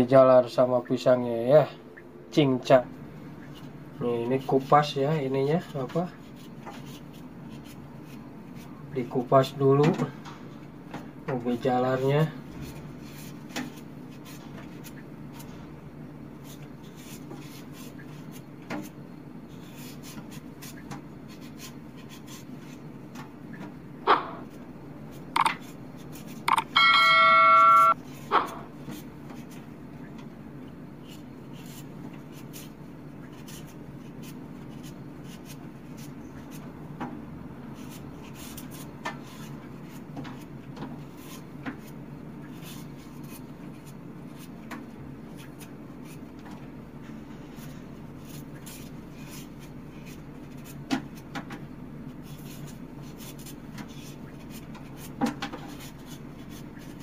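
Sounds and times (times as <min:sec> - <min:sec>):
knife scraping while peeling: 0:16.4 - 0:22.9, 0:37.7 - 0:40.5, 0:41.1 - 0:44.6, 0:47.2 - 0:51.3, 0:52.1 - 0:57.0
bright bell-like chime: 0:26.8 - 0:28.0.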